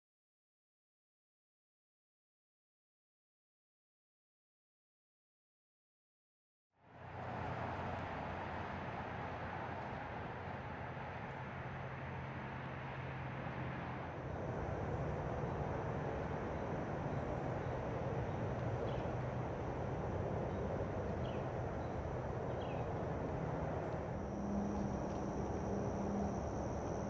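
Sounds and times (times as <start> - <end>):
steady rushing noise: 6.9 - 27.0
high insect buzz: 24.2 - 27.0.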